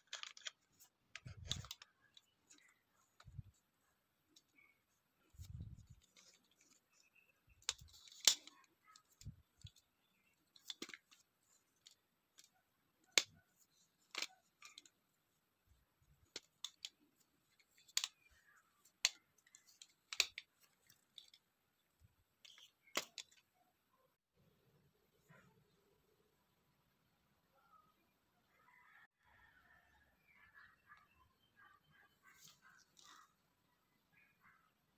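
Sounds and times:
sharp plastic clicks: 0:00.0 - 0:03.6, 0:07.5 - 0:15.0, 0:16.2 - 0:21.4, 0:22.4 - 0:23.5.

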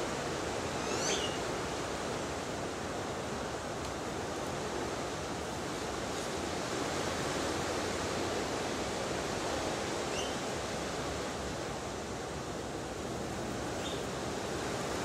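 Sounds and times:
rushing outdoor background noise: 0:00.0 - 0:15.0
faint high chirp: 0:00.6 - 0:01.4, 0:10.1 - 0:10.4.

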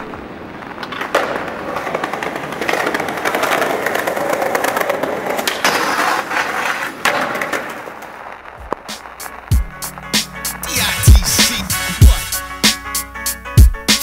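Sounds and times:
skateboard clacking on ground: 0:00.0 - 0:10.5
skateboard wheels rolling on paving: 0:00.0 - 0:14.0.

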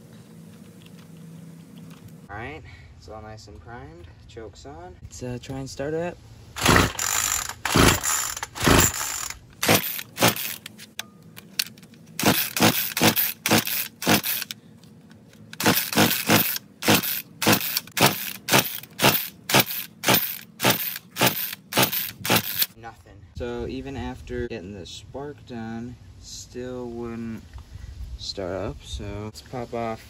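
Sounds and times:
engine turning over: 0:06.6 - 0:10.9, 0:11.5 - 0:14.6, 0:15.4 - 0:22.8.

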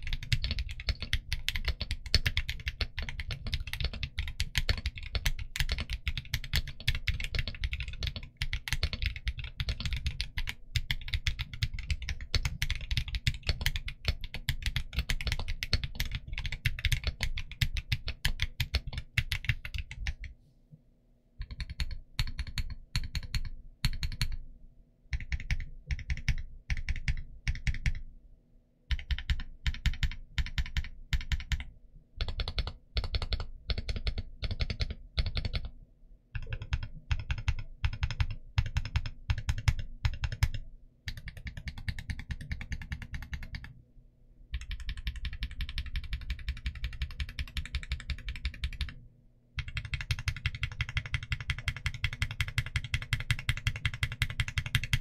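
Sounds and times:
mechanical keyboard typing: 0:00.0 - 0:20.3, 0:21.4 - 0:24.4, 0:25.1 - 0:28.0, 0:28.9 - 0:35.7, 0:36.4 - 0:43.7, 0:44.5 - 0:49.0, 0:49.6 - 0:55.0.

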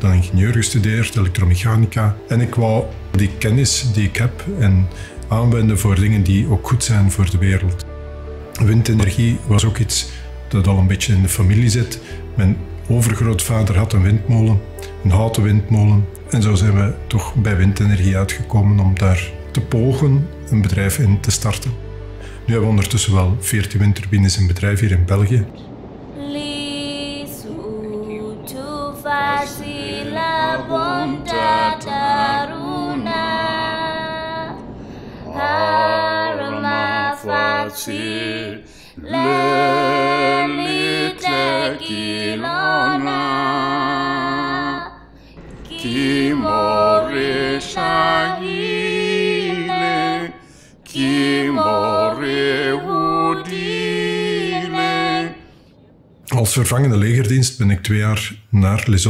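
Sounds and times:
women singing together: 0:26.2 - 0:34.6, 0:35.3 - 0:55.5.

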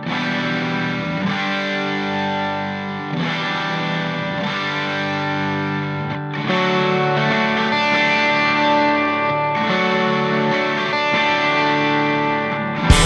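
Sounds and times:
instrumental music chords: 0:08.2 - 0:13.0.

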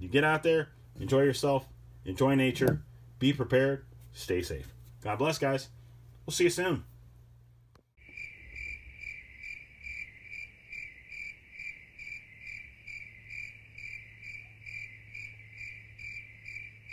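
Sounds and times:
faint low hum: 0:00.0 - 0:16.9
cricket chirping: 0:08.0 - 0:16.9.

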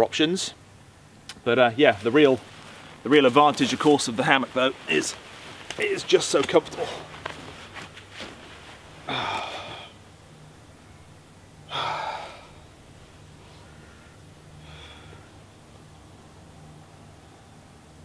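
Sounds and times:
hammock rustling: 0:00.7 - 0:18.0
man sighing: 0:09.0 - 0:10.0, 0:11.7 - 0:12.6
faint breath: 0:13.4 - 0:15.4.

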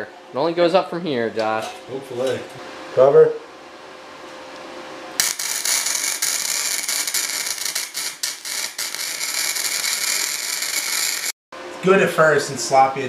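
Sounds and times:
welding arc crackling: 0:05.2 - 0:11.4.

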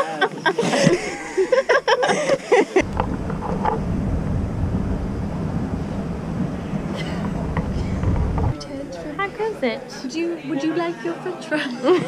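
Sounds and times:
steady low rumble: 0:00.9 - 0:02.1, 0:02.8 - 0:10.4
voices: 0:06.0 - 0:12.0.

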